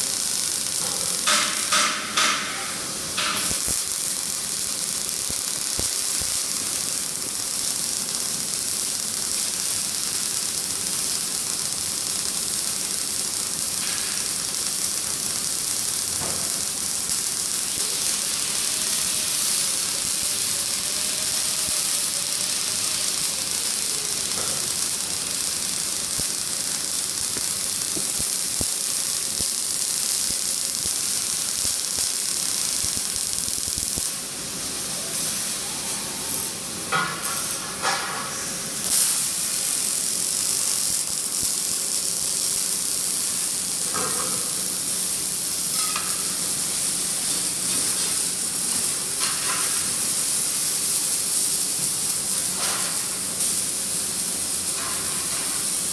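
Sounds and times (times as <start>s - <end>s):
welding arc crackling: 0.0s - 55.9s.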